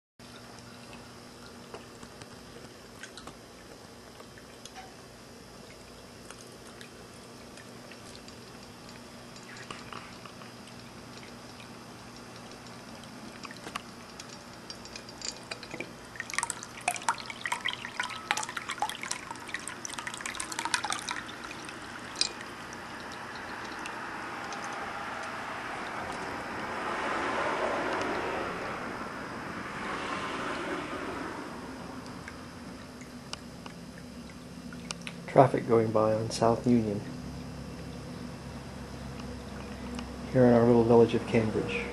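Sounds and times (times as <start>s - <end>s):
water dripping and trickling: 0.2s - 4.8s, 5.5s - 28.3s, 32.0s - 35.3s
faint steady pump hum: 0.2s - 41.9s.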